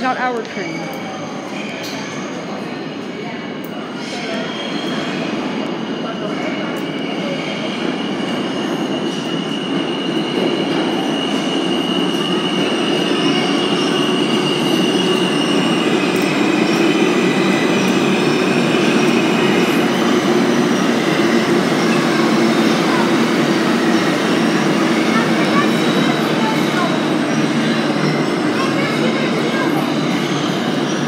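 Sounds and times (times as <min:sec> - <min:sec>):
high train squeal: 0:00.0 - 0:31.0
subway train wheels rumbling on rail: 0:00.0 - 0:31.0.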